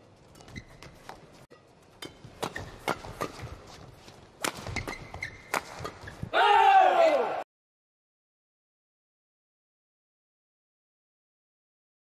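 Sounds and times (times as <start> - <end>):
rackets hitting shuttlecock: 1.5 - 6.3.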